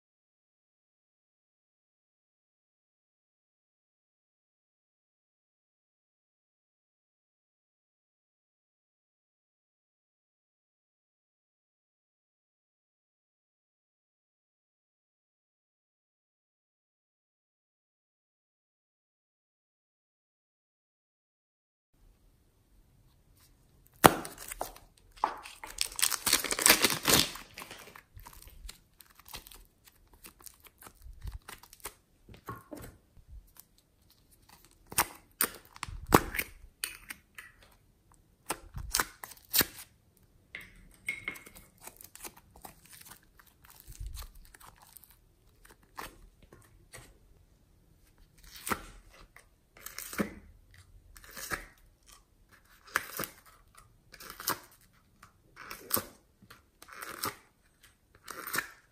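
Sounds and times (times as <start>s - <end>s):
plastic bag crinkling and tearing: 24.0s - 32.0s, 41.8s - 46.0s.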